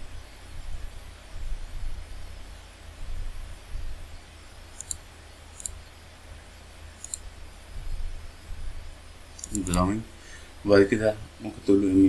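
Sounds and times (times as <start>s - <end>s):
low background rumble: 0.0s - 12.0s
computer mouse clicking: 4.8s - 5.0s, 5.6s - 5.8s, 7.0s - 7.2s, 9.4s - 9.9s.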